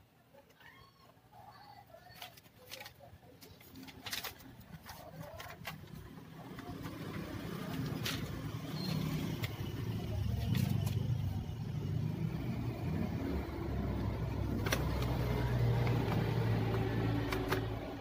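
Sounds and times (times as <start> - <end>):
plastic keyboard case clicks: 14.6 - 15.2, 15.8 - 17.9.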